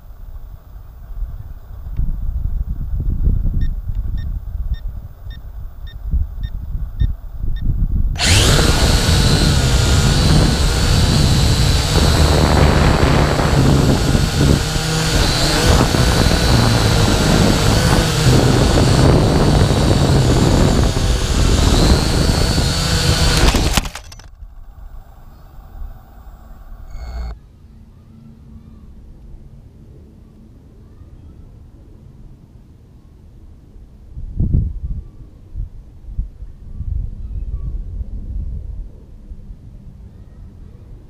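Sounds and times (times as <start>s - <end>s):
wind rumble: 0.3s - 27.4s
drone propellers whining: 8.2s - 27.4s.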